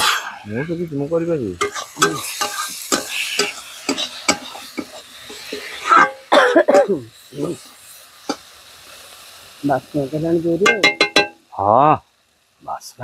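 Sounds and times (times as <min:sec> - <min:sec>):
metal spatula scraping a wok: 0:00.0 - 0:00.7, 0:01.6 - 0:06.3
person coughing: 0:06.3 - 0:07.0.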